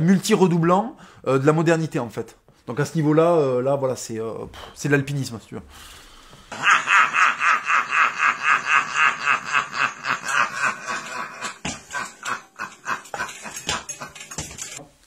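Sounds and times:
man laughing hard: 6.5s - 14.4s.

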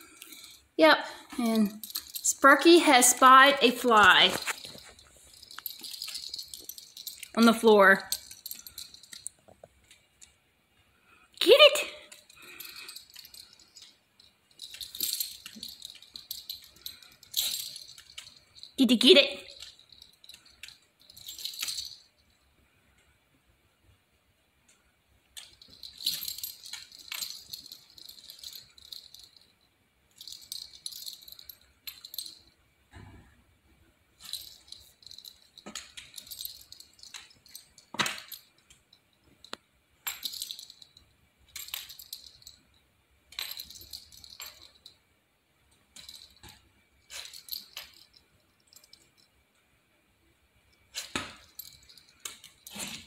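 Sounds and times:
dog collar tags jingling: 1.3s - 9.6s, 11.6s - 22.4s, 25.4s - 32.6s, 34.2s - 45.0s, 45.9s - 49.4s, 50.8s - 53.0s.

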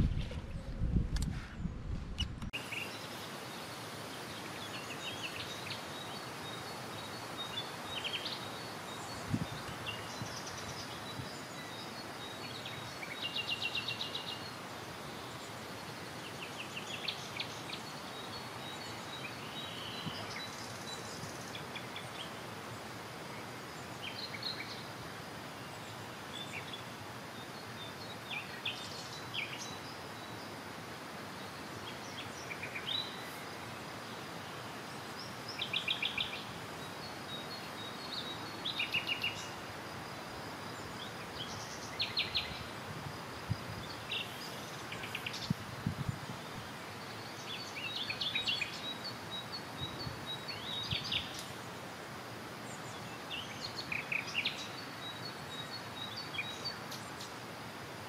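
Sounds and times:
low rumble: 0.0s - 2.5s
small birds chirping: 1.6s - 57.6s
outdoor hiss: 2.4s - 58.0s.

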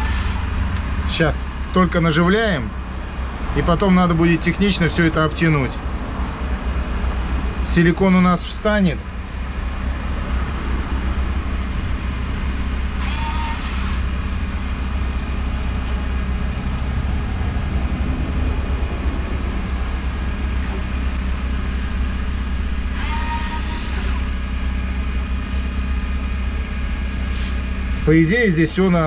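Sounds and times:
low mechanical hum: 0.0s - 29.0s
whirring hiss: 12.5s - 14.4s, 21.9s - 24.5s.

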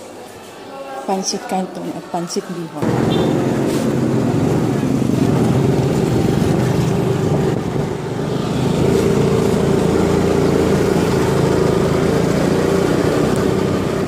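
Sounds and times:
road and wind noise: 2.8s - 14.0s
scooter engine running: 2.8s - 14.0s.

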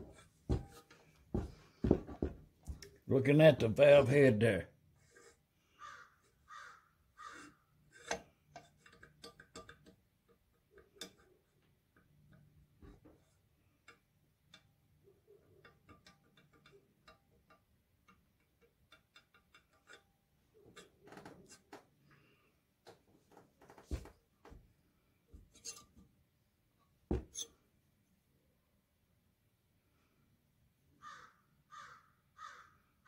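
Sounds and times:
metal valve clicking and tapping: 7.9s - 21.0s.

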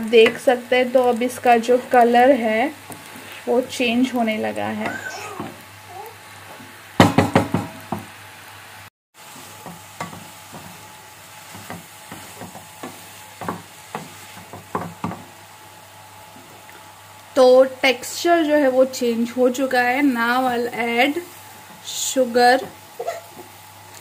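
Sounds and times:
faint sizzle: 0.0s - 24.0s
wooden spatula scraping pan: 9.3s - 15.3s
light tapping of a spatula: 9.4s - 10.8s, 11.4s - 15.3s.

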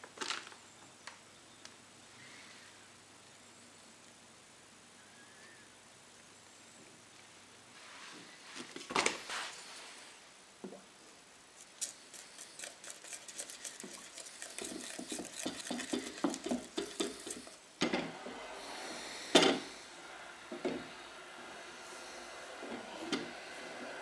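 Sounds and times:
stick scraping clicking in bowl: 11.6s - 17.6s.

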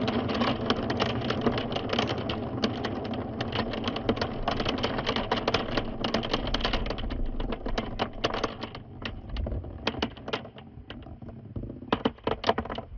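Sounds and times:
marbles clattering in funnel: 0.0s - 12.9s.

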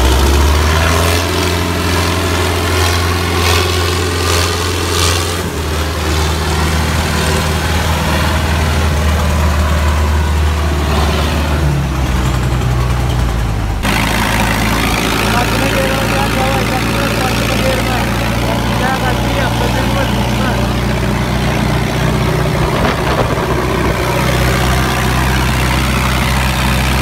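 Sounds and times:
diesel engines under load: 0.0s - 27.0s
tractor engine running: 0.0s - 27.0s.

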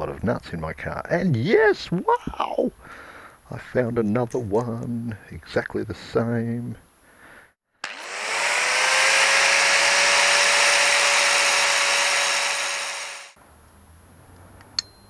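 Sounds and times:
angle grinder grinding metal: 7.8s - 13.4s.

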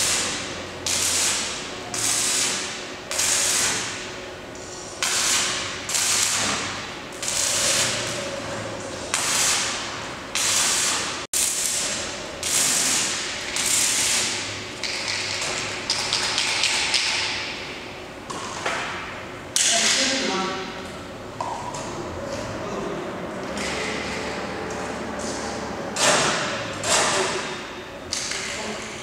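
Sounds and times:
arc welding crackling hiss: 0.0s - 4.1s, 5.0s - 8.2s, 8.9s - 14.6s.

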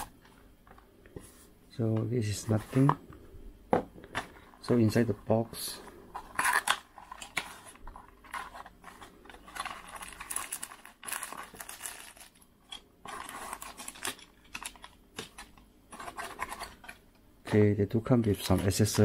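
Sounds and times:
plastic packaging rustling: 4.1s - 17.0s.

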